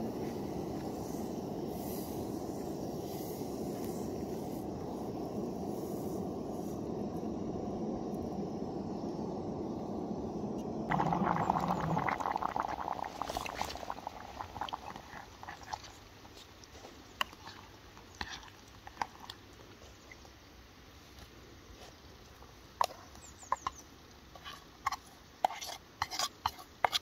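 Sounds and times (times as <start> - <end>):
dry food pouring into water: 10.9 - 15.9.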